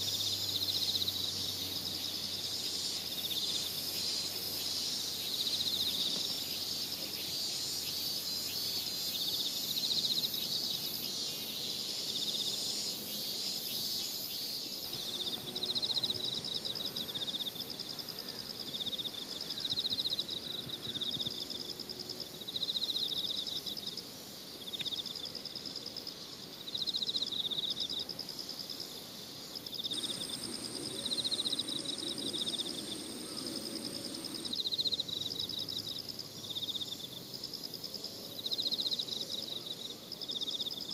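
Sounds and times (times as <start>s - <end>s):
insects chirping in trills: 0.0s - 40.9s
high-pitched whine: 29.9s - 34.9s.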